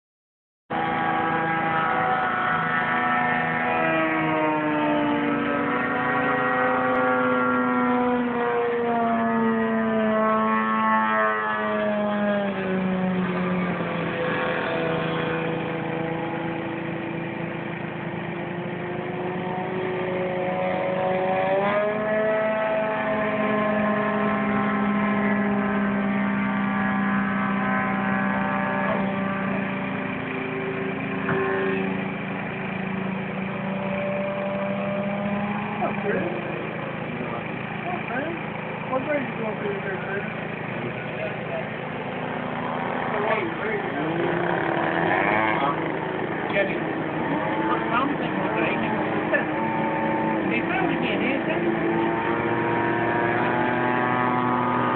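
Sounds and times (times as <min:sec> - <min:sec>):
model airplane motor drone: 0:12.2 - 0:54.9.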